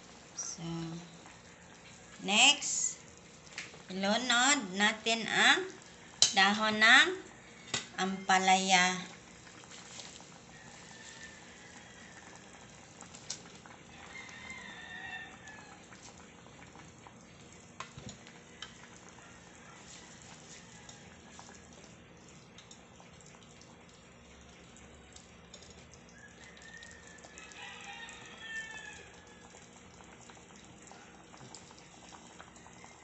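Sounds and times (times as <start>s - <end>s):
broth simmering faintly: 0.0s - 33.0s
ladle stirring: 9.4s - 11.6s, 17.5s - 22.0s.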